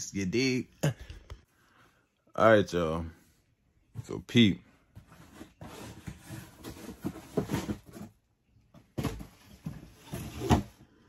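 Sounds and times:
objects rustling: 4.8 - 8.2.

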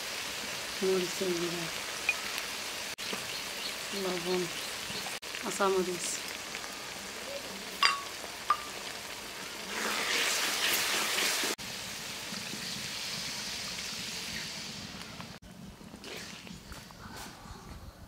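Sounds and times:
onion masala sizzling in pan: 0.0 - 15.4
water poured into hot pan: 7.8 - 14.9.

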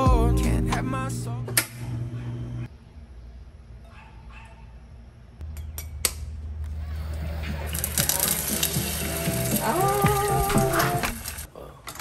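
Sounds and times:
oil sizzling and crackling: 7.0 - 11.5.

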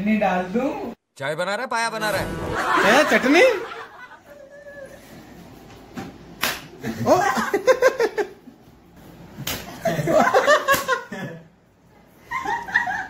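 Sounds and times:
burst of laughter: 2.2 - 4.9
sharp hand slaps: 6.0 - 6.8, 9.4 - 9.8, 10.7 - 11.0.

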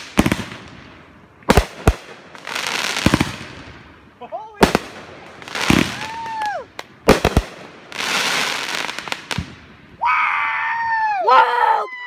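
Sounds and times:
fireworks banging: 0.0 - 9.7
fireworks crackling: 0.0 - 9.9
people whooping: 5.8 - 6.8, 10.0 - 12.0.

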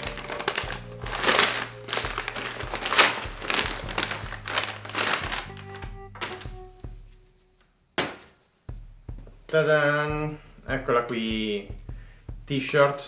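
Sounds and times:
paper packaging crinkling: 0.0 - 7.2
background music: 0.0 - 7.9, 8.6 - 13.0.

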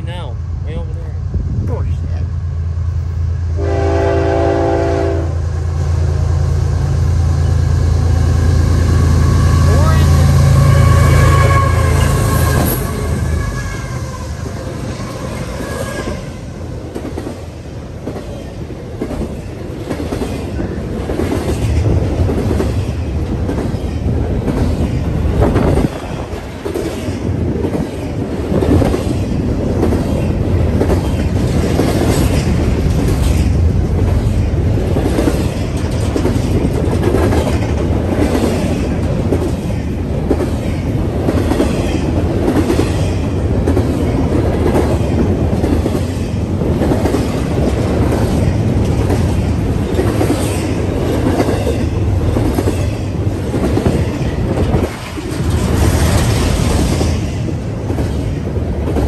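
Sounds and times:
freight train rumbling: 0.0 - 59.0
wheels clacking over rail joints: 16.8 - 59.0.

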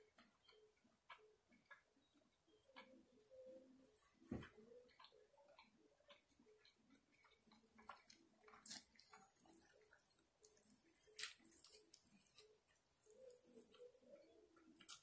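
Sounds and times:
chewing and lip smacks: 0.0 - 15.0
chicken tearing crackle: 7.8 - 13.8.

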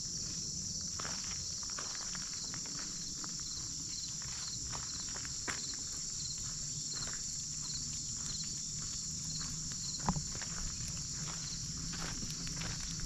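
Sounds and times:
insects droning: 0.0 - 13.0
footsteps crunching on gravel: 0.2 - 13.0.

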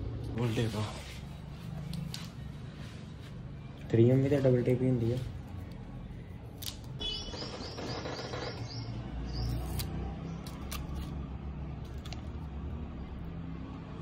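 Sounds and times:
bird chirping: 7.0 - 10.7.

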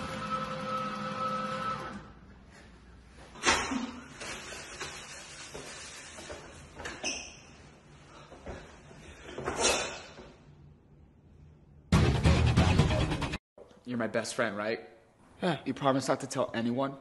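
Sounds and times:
towel dispenser motor whirring: 0.0 - 2.1
paper towel rustling: 4.1 - 6.8.

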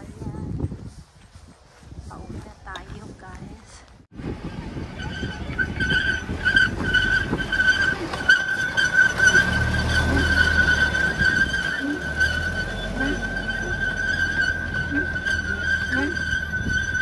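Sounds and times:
low train rumble: 4.2 - 17.0
train wheels squealing on rails: 4.5 - 17.0.

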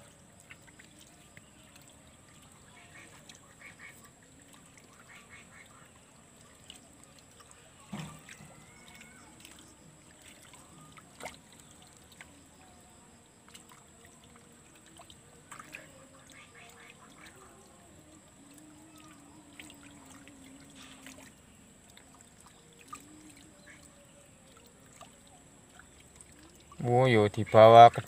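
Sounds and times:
thump: 7.9 - 8.2.

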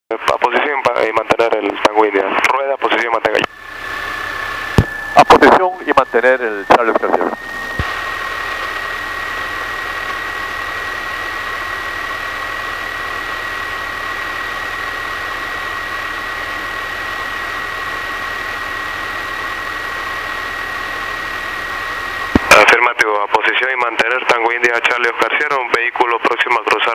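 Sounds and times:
high-pitched whine: 2.8 - 26.9
aircraft engine idling: 3.5 - 22.7.

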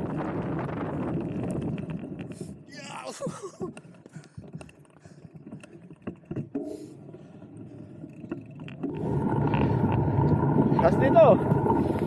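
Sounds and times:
wind rumble on microphone: 0.0 - 4.7
bike clicks and rattles: 0.0 - 10.0
low rumble: 8.8 - 12.0.

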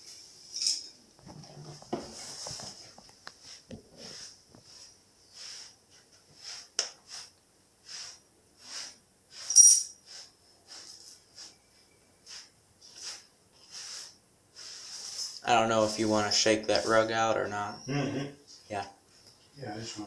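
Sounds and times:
broom swishing on tile floor: 1.7 - 17.1.

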